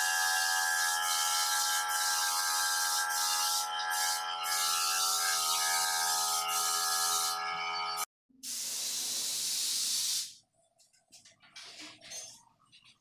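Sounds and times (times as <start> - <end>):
air compressor humming: 0.0 - 7.4
spray gun hissing: 1.1 - 4.7, 6.6 - 7.3, 8.4 - 10.4.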